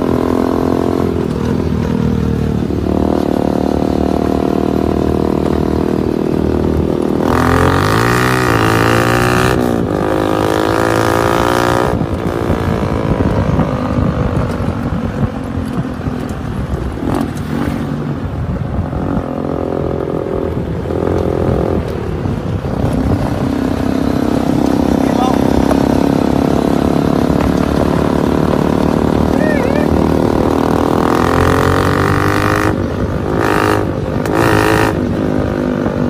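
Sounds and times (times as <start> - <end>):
go-kart engine revving: 0.0 - 14.9, 22.6 - 36.0.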